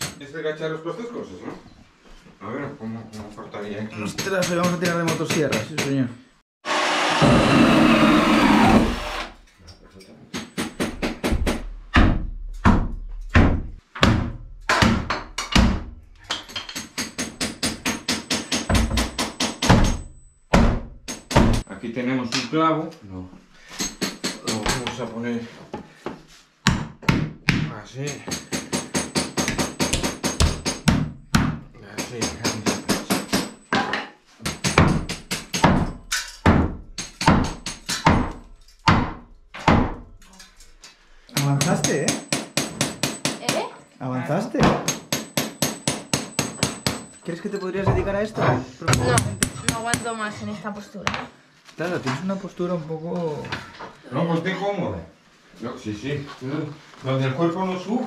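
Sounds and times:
hammer driving nail into wood: 44.6s - 47.1s.

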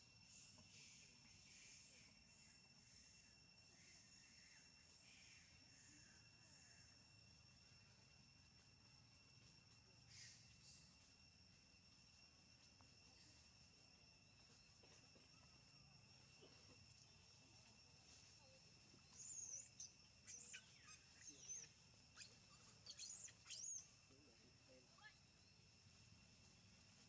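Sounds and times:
insects droning: 0.0s - 27.0s
young macaque squeaking: 19.1s - 23.9s.

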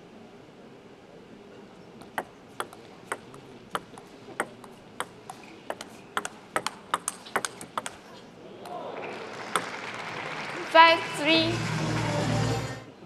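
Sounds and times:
table tennis ball hits: 2.0s - 8.1s, 9.5s - 9.8s.

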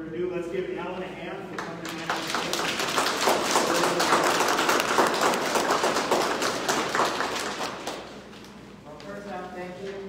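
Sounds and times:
people applauding: 1.5s - 8.3s.

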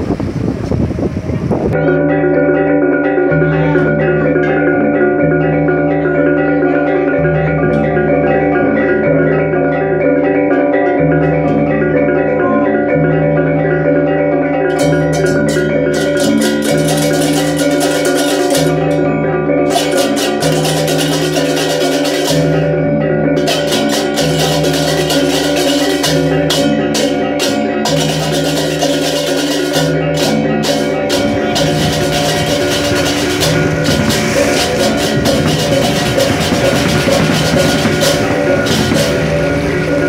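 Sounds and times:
metallophones ringing: 1.7s - 40.0s
small cymbals clattering: 14.5s - 40.0s.

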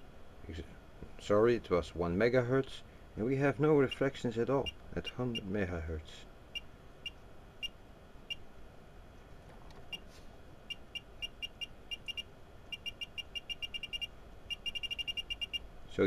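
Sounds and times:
high electronic beeps: 11.0s - 15.6s.

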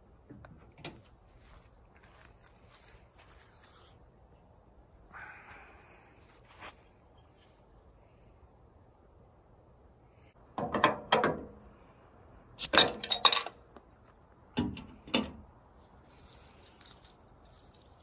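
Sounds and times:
bottle cap levered off metal opener: 12.6s - 13.6s.

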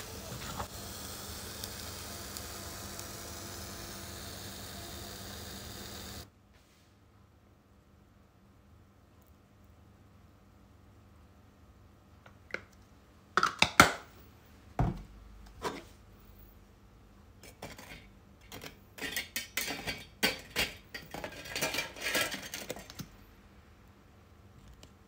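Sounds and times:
metal tongs clinking and scraping: 17.4s - 23.0s.

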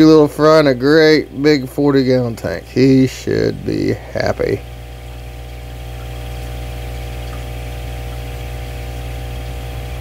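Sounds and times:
aquarium equipment humming: 0.0s - 10.0s.

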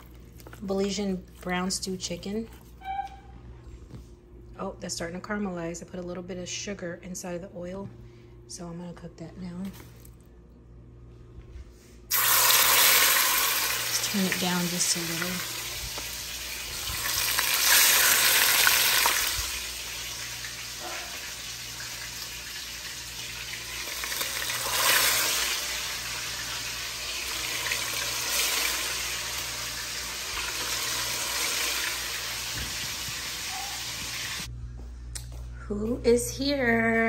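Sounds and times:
oil sizzling in a pot: 12.1s - 34.5s.

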